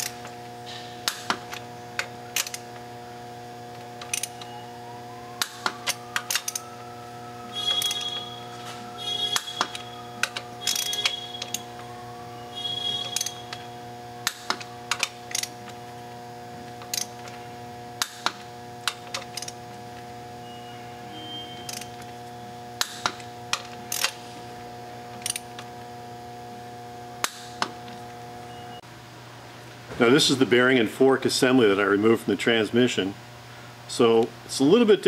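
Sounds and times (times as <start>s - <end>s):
torque wrench clicks: 4.0s - 4.5s, 12.6s - 13.6s, 14.2s - 15.8s, 16.8s - 17.4s, 18.0s - 19.6s, 21.6s - 22.1s, 25.2s - 25.6s
torque wrench ratcheting: 4.0s - 4.5s, 9.0s - 11.8s, 12.5s - 15.8s, 16.8s - 17.4s, 21.5s - 22.1s.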